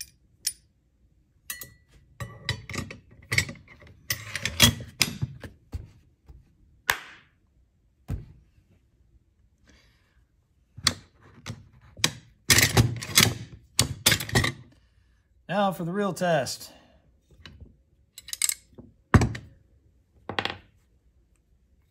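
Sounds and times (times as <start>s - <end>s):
metal rifle parts clicking: 18.2s - 18.8s.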